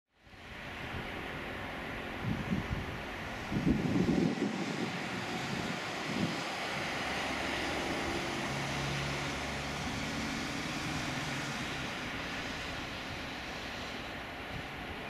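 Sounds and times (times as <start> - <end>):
jet engines at takeoff: 0.2 - 15.0
wind buffeting microphone: 2.1 - 15.0.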